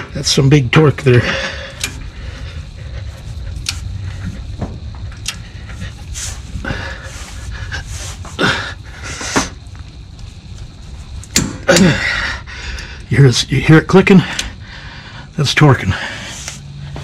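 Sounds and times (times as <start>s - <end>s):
low background noise: 0.0s - 17.0s.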